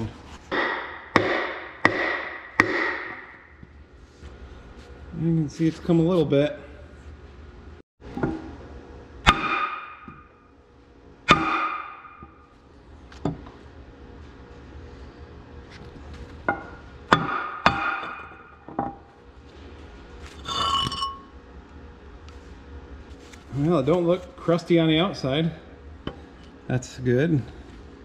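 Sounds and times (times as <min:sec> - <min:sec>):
hammer striking metal: 0:00.5 - 0:03.6, 0:09.2 - 0:10.4, 0:11.3 - 0:12.4, 0:16.5 - 0:18.9
metallic ringing: 0:20.4 - 0:21.3.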